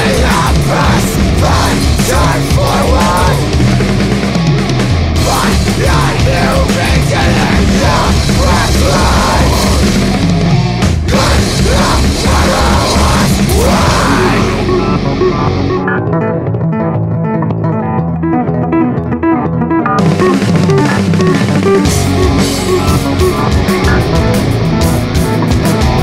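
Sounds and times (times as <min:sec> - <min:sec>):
harsh shouted vocals: 0:00.0 - 0:04.1, 0:05.1 - 0:15.4
heavy metal band playing: 0:00.0 - 0:26.0.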